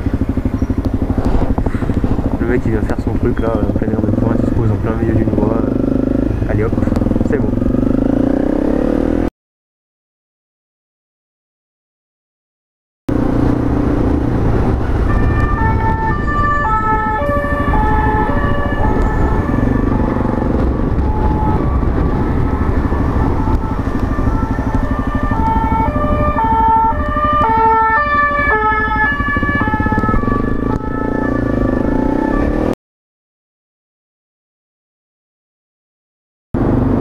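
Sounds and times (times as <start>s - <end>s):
motorcycle engine running: 0.0s - 9.3s, 13.1s - 32.7s, 36.6s - 37.0s
two-tone emergency siren: 14.1s - 32.8s.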